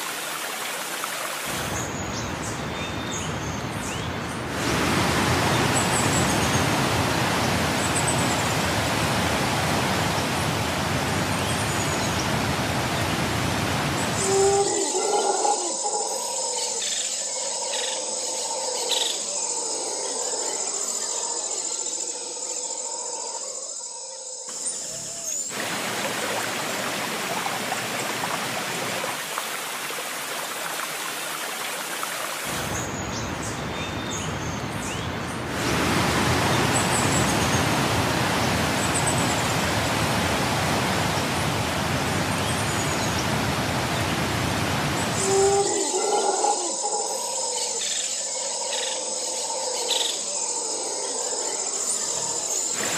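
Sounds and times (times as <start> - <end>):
waterfall rushing: 0.0 - 2.5, 4.3 - 14.8, 25.3 - 45.9, 52.7 - 52.9.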